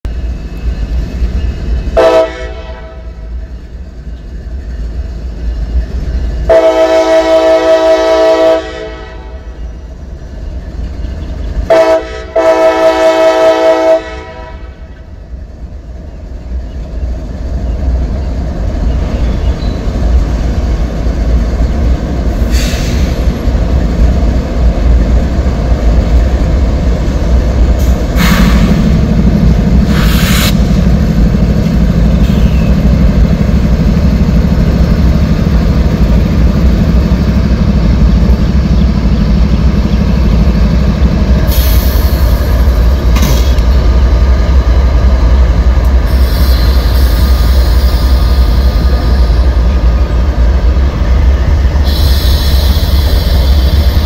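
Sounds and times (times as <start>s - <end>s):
locomotive rumble: 0.0s - 54.0s
train air horn blasts: 2.0s - 3.2s, 6.5s - 9.5s, 11.7s - 14.9s.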